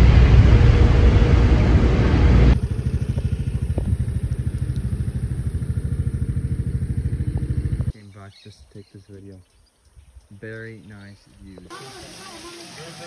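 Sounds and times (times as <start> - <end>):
wind rush: 0.0 - 4.6
engine rumble: 0.0 - 11.7
scooter engine idling: 2.6 - 7.9.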